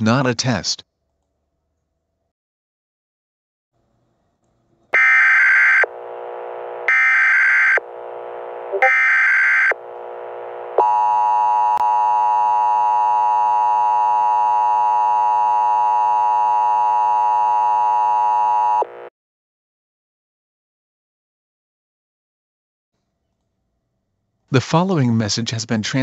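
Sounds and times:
click: 1.1s - 1.9s.

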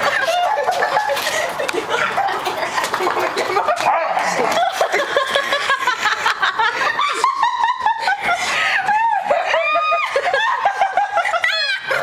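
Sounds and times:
person laughing hard: 0.0s - 12.0s.

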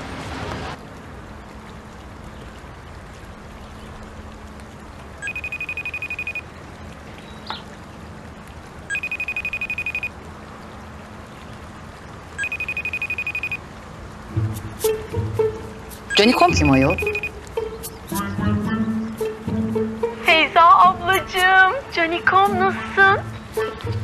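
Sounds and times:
faint steady background noise: 0.0s - 24.0s
phone trilling ringtone: 5.2s - 6.4s, 8.9s - 10.1s, 12.4s - 13.6s, 16.1s - 17.4s.

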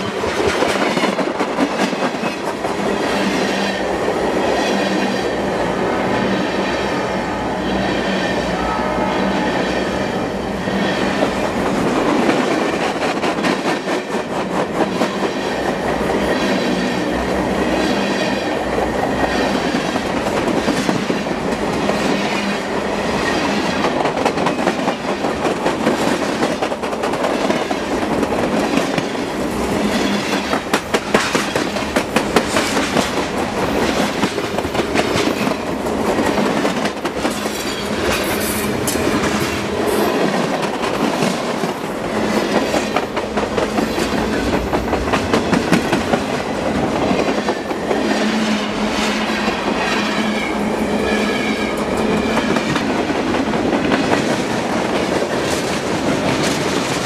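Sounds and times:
freight train rumble: 0.0s - 57.0s
wheels clacking over rail joints: 23.2s - 48.1s.

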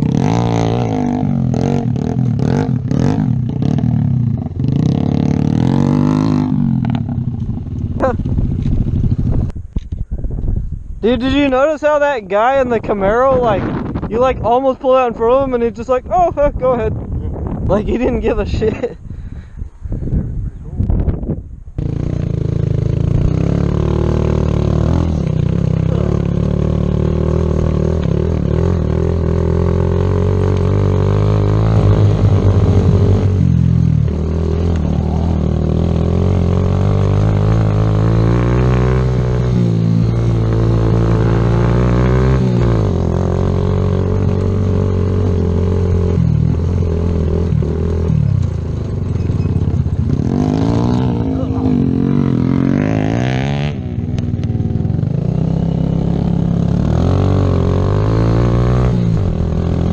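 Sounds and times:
motorcycle engine running: 0.0s - 10.2s, 21.8s - 59.9s.

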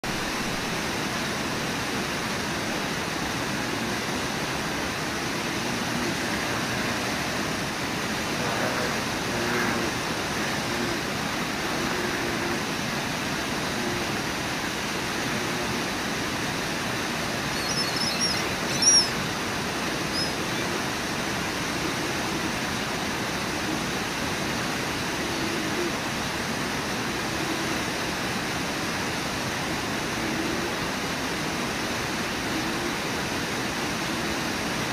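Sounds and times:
whitewater rapids rushing: 0.1s - 34.9s.

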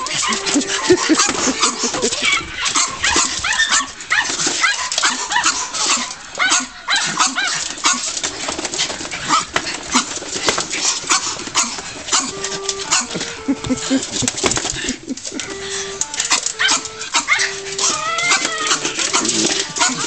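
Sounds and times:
dogs whining: 0.0s - 8.2s, 9.1s - 20.0s
dogs barking: 0.0s - 20.0s
paws knocking on plastic shell: 7.1s - 20.0s.

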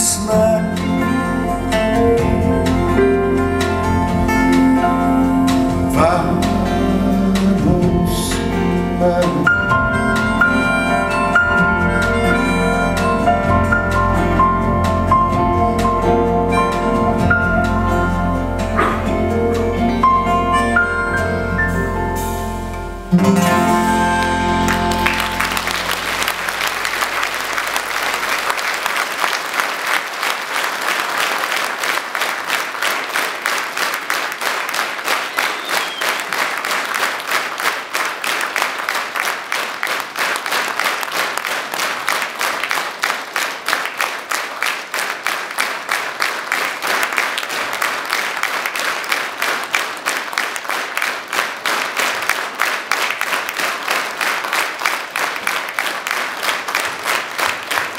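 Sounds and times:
rhythmic clapping in unison: 18.7s - 19.1s, 24.2s - 57.9s
audience applauding: 23.2s - 57.9s.

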